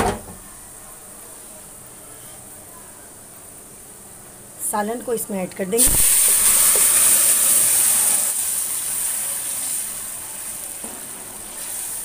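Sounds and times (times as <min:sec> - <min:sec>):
broth pouring into pot: 0:05.8 - 0:12.0
hot oil sizzling: 0:05.8 - 0:12.0.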